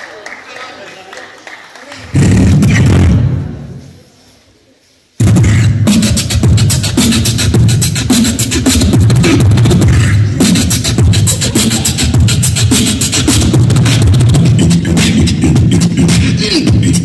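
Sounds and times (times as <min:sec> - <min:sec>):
amplified beatboxing: 0:02.1 - 0:03.6, 0:05.2 - 0:17.0.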